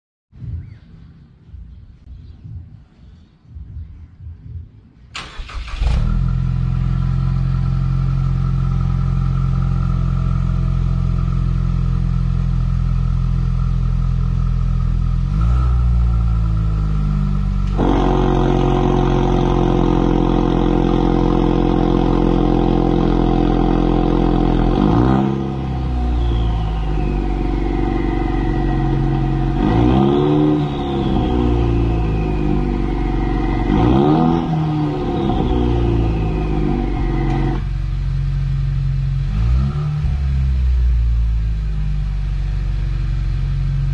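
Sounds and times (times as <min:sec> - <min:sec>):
car engine starting and idling: 0:05.1 - 0:43.9
engine revving: 0:05.2 - 0:41.8
turbo whistle: 0:16.8 - 0:22.3, 0:24.5 - 0:37.7.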